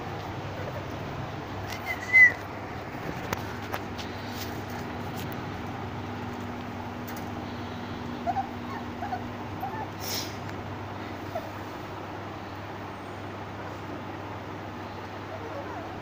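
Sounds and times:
steady low hum: 0.0s - 16.0s
puppies whimpering: 0.3s - 2.5s, 7.8s - 11.8s, 15.0s - 16.0s.

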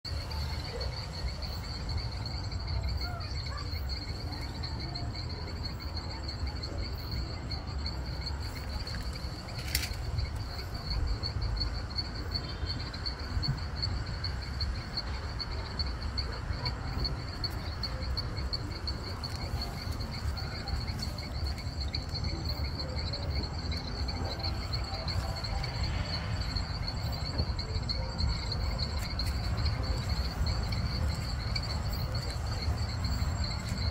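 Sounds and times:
constant low rumble: 0.1s - 33.9s
insects trilling: 0.1s - 33.9s.

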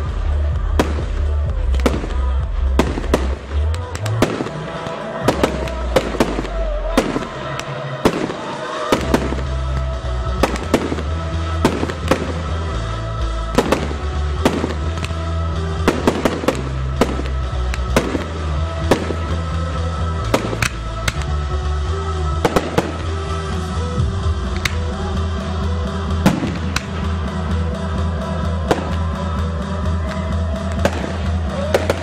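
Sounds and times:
music with heavy bass: 0.0s - 32.0s
fireworks bursting: 0.2s - 24.9s, 26.1s - 27.6s, 28.4s - 32.0s.

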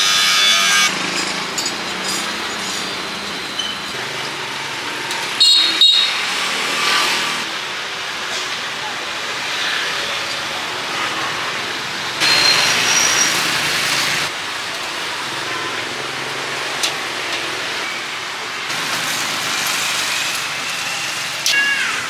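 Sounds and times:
street stall background noise: 0.0s - 22.0s
beef sizzling on grill: 18.7s - 21.5s.

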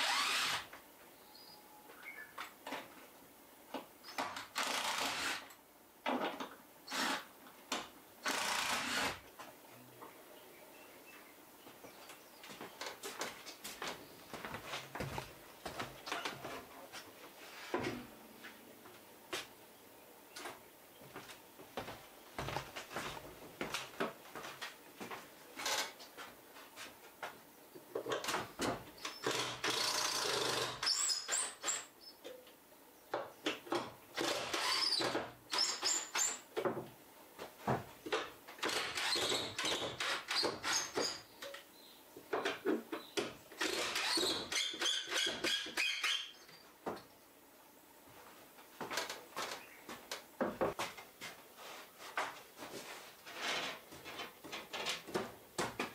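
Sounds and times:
cordless drill driving screws: 0.0s - 0.7s, 4.4s - 5.6s, 6.9s - 7.3s, 8.2s - 9.2s, 29.1s - 31.8s, 34.2s - 36.3s.

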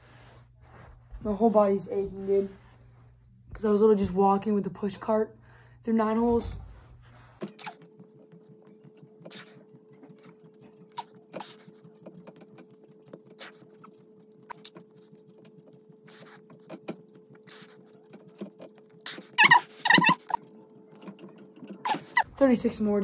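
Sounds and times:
man breathing: 5.4s - 5.8s.

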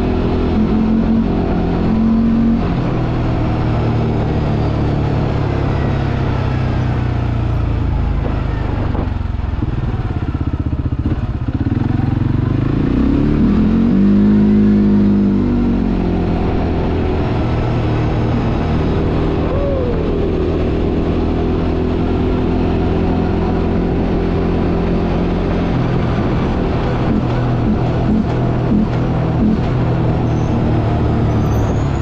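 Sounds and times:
atv engine: 0.0s - 32.0s.

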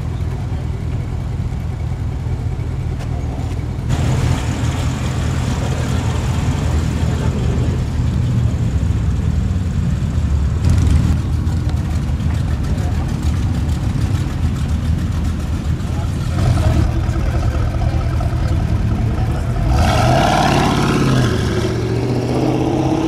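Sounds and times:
car engine idling: 0.0s - 19.9s.

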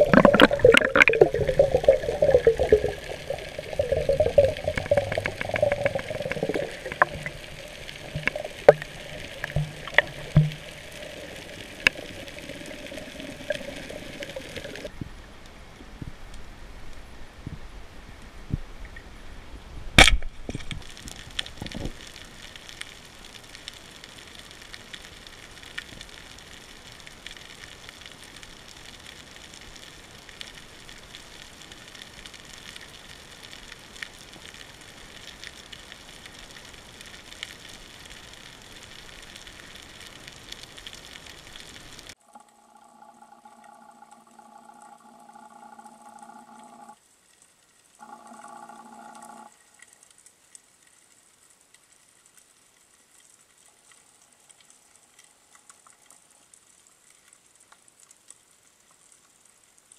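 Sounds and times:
underwater crackle and hiss: 0.0s - 19.2s, 20.0s - 59.9s
speargun shot crack underwater: 20.0s - 20.3s.

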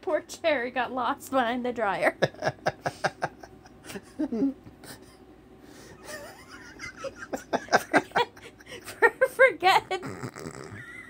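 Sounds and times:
person laughing: 2.2s - 5.2s, 6.0s - 11.0s.

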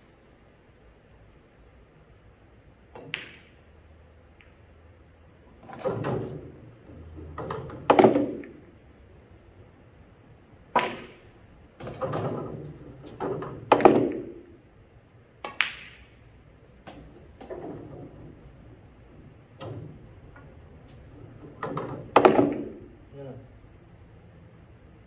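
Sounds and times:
pool balls clacking: 2.8s - 4.9s, 5.5s - 8.8s, 10.6s - 14.6s, 15.4s - 23.1s.

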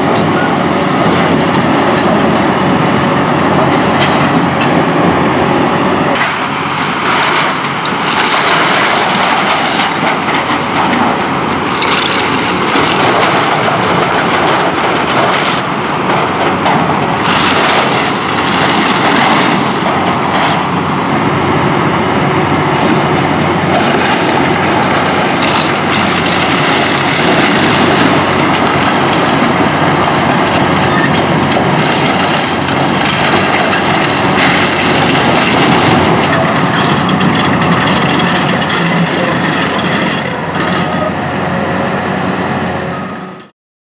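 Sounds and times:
excavator engine running: 0.0s - 43.5s
wood cracking and splintering: 6.2s - 20.7s, 22.8s - 40.8s.

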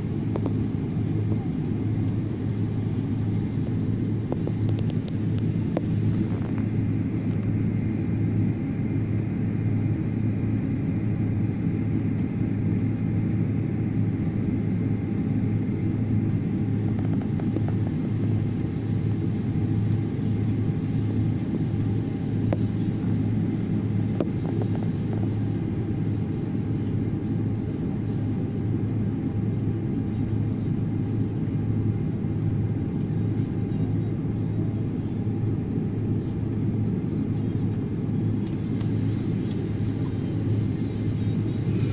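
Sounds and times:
jet engines rumbling in cabin: 0.0s - 41.9s.

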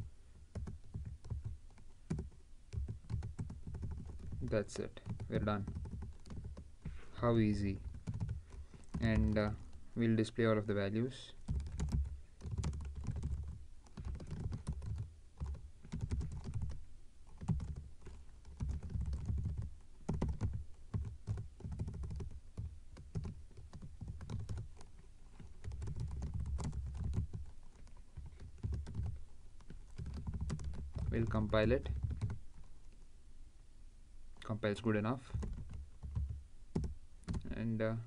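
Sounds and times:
computer keyboard typing: 0.4s - 10.3s, 11.3s - 32.7s, 35.3s - 37.6s.

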